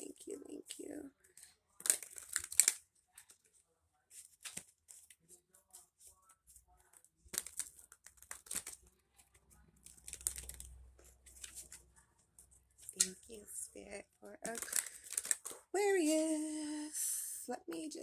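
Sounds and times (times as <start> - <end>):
cards being shuffled: 1.8 - 3.3, 4.1 - 9.3, 9.9 - 11.8, 14.4 - 16.2.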